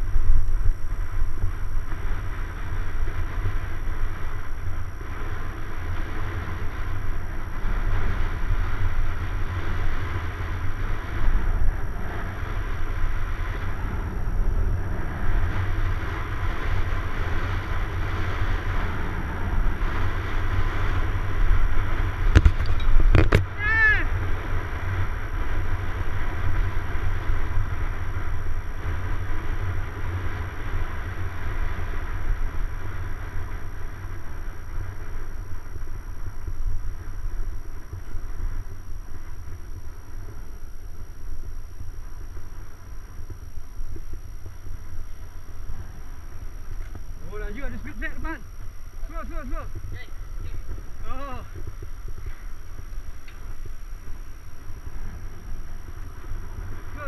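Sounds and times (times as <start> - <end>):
tyre noise on tarmac: 0.0 - 57.0
wind rumbling on microphone: 0.0 - 57.0.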